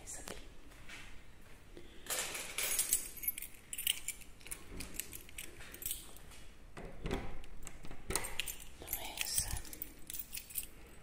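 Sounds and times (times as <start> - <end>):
keys jangling: 2.1 - 6.3, 8.0 - 11.0.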